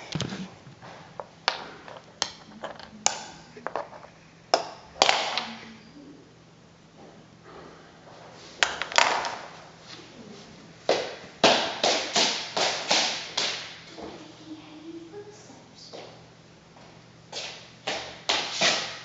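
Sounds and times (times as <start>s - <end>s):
hard objects tapping and knocking: 0.0s - 5.5s.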